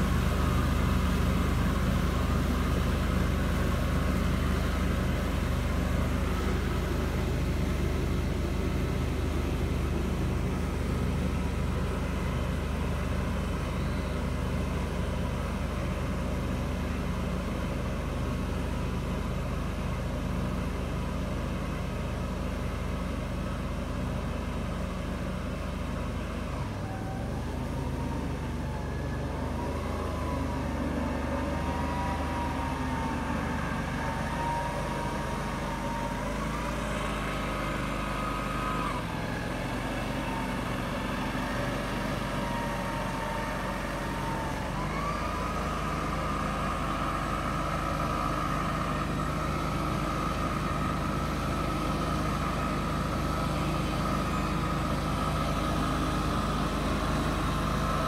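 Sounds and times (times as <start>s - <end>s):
engine whine: 0.0s - 58.0s
vehicle engine driving through water: 0.0s - 58.0s.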